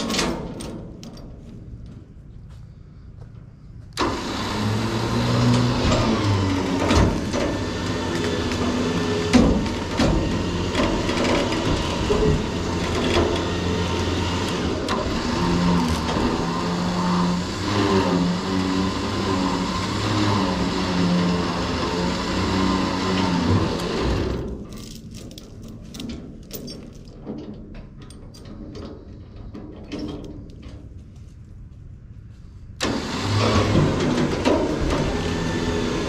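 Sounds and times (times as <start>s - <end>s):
electric winch motor running: 4.0s - 24.5s, 32.8s - 36.0s.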